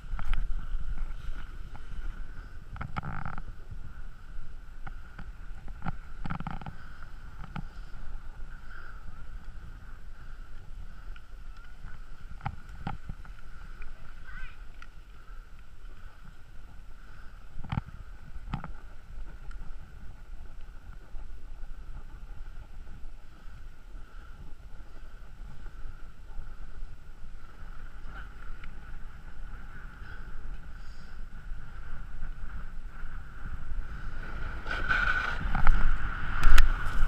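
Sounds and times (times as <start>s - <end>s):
faint steady whine: 0.0s - 37.0s
skis sliding over packed snow: 0.0s - 37.0s
wind buffeting microphone: 0.0s - 37.0s.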